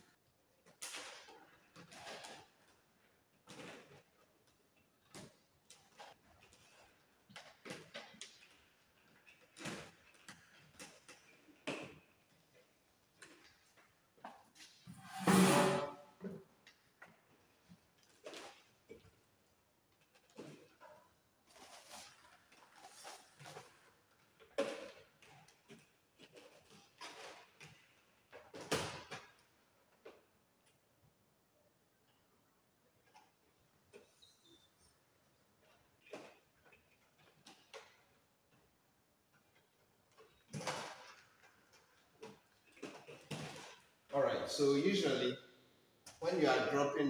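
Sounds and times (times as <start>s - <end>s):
wires scraping along plastic conduit: 20.0s - 28.6s.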